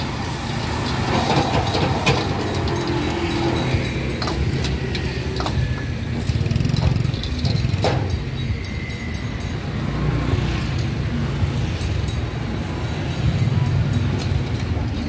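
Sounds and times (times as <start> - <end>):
clicks and clatter: 0.0 - 9.0
traffic engines rumbling: 0.0 - 15.0.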